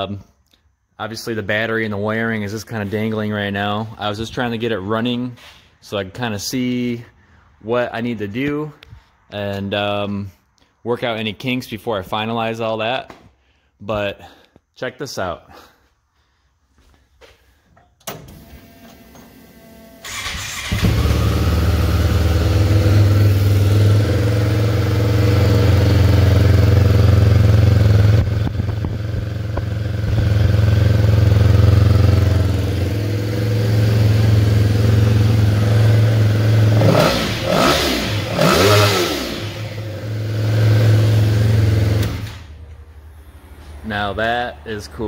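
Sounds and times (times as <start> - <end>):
snowmobile engine idling and revving: 20.7 - 42.5.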